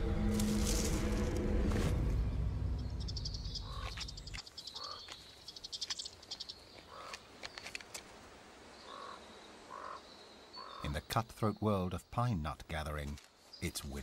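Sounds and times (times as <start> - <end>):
low rumble: 0.0 - 3.8
faint forest ambience: 0.0 - 14.0
high ticking animal calls: 3.1 - 7.6, 8.8 - 11.1.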